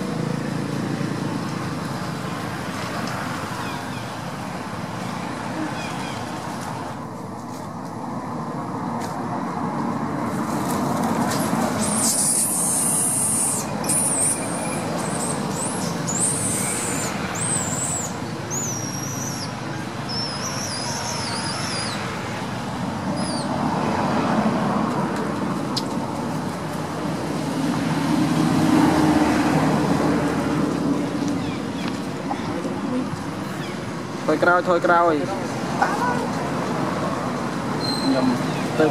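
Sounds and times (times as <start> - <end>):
outdoor background noise: 0.0 - 38.9
baby monkey squealing: 11.8 - 22.0.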